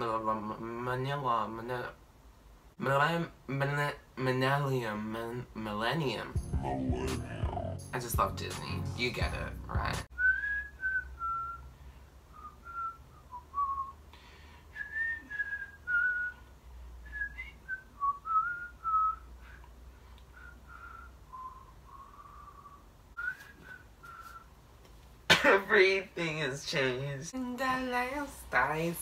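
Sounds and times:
person whistling a tune: 0:10.1 - 0:11.7, 0:12.3 - 0:14.1, 0:14.7 - 0:19.7, 0:20.3 - 0:24.5.

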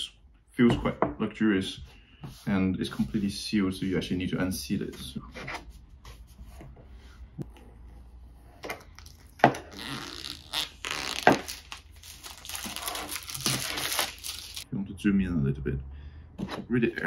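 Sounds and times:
plastic film crinkling: 0:09.0 - 0:14.6.

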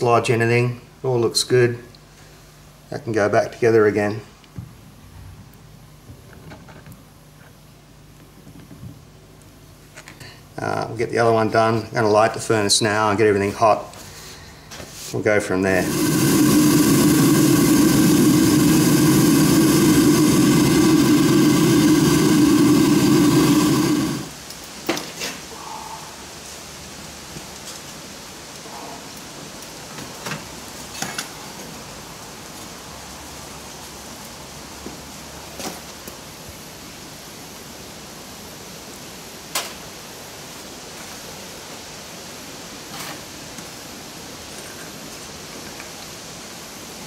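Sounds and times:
furnace burner hissing: 0:00.0 - 0:47.0
steady rushing noise: 0:15.6 - 0:24.4
low hum: 0:15.7 - 0:24.4.

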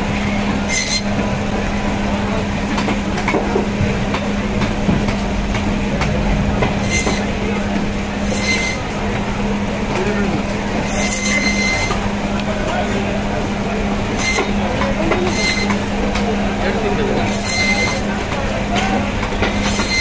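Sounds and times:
band saw humming: 0:00.0 - 0:20.0
saw blade rasping through bone: 0:10.9 - 0:12.0, 0:17.3 - 0:18.0.

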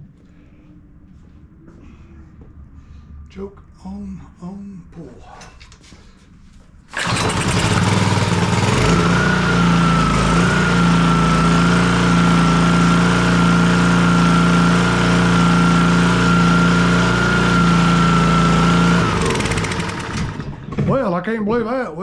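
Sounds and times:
pressure washer engine running: 0:06.9 - 0:20.6.

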